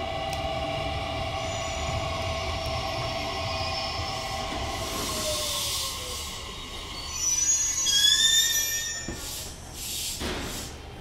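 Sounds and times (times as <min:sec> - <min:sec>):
train brakes squealing: 0:01.4 - 0:02.5, 0:03.5 - 0:10.2
short air hisses: 0:09.2 - 0:10.8.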